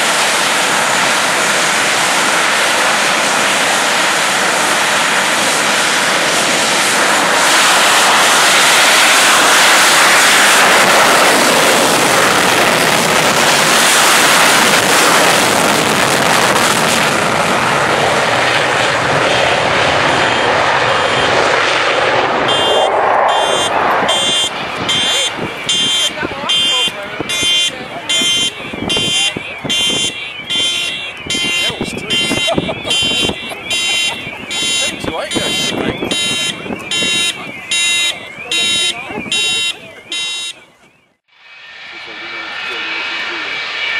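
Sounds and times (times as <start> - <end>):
jet aircraft taxiing: 0.0 - 43.9
pulsing electronic beeping: 22.3 - 41.2.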